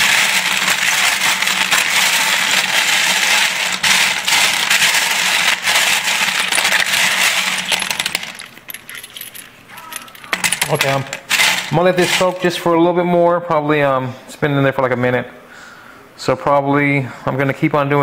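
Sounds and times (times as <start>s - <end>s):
metal cases clinking in water: 7.7s - 12.5s.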